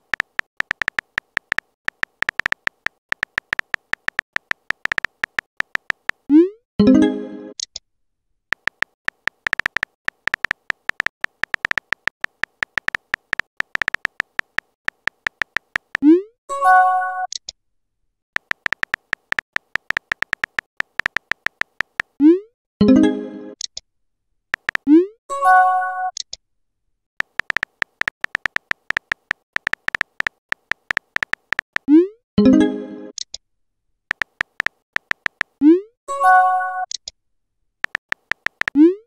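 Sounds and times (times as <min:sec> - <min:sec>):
keyboard typing clicks: 0:00.0 - 0:06.5, 0:08.5 - 0:16.2, 0:18.4 - 0:22.2, 0:24.6 - 0:25.0, 0:27.2 - 0:31.9, 0:34.1 - 0:35.7, 0:37.8 - 0:39.0.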